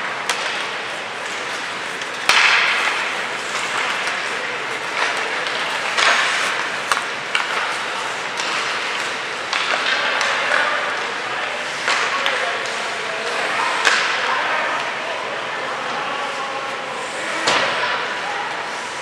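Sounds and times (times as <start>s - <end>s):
sticks clacking on pucks: 0.0s - 14.2s
skate blades scraping on ice: 0.1s - 10.2s.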